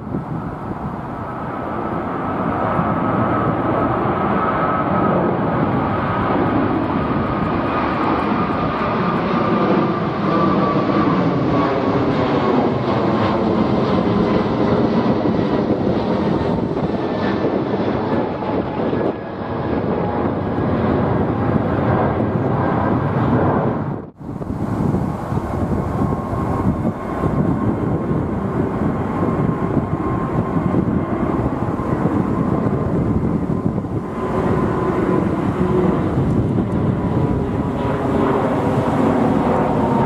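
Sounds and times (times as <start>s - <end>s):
jet plane passing overhead: 0.0s - 40.0s
high engine whine: 20.0s - 40.0s.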